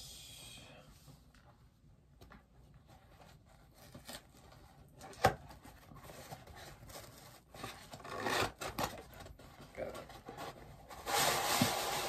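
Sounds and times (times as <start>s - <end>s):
cardboard box scrapes and rustles: 10.2s - 12.0s.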